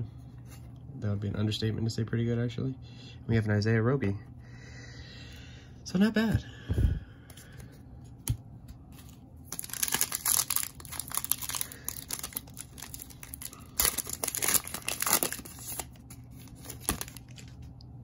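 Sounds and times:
plastic wrapper tearing and crinkling: 0:09.4 - 0:17.7.

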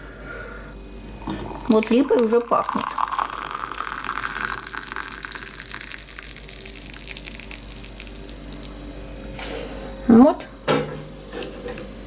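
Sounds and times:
tea pouring into a glass mug: 0:01.1 - 0:08.7.

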